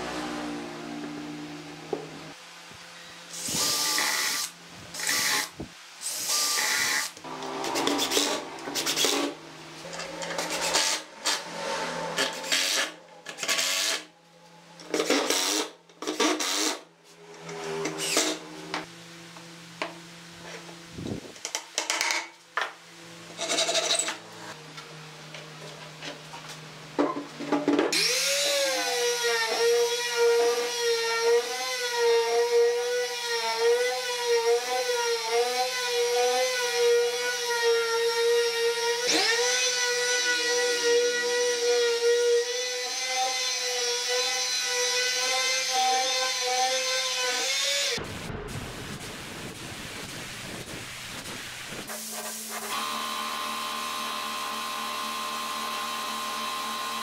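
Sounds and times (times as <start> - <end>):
cordless drill driving screws: 17.8 - 18.4
electric palm sander running: 52.6 - 57.0.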